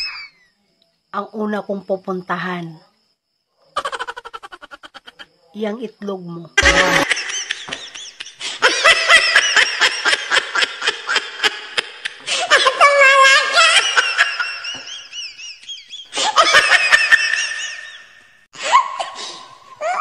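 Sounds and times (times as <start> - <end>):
high-pitched breathy laughter: 3.8 - 5.4, 8.2 - 18.0, 18.6 - 20.0.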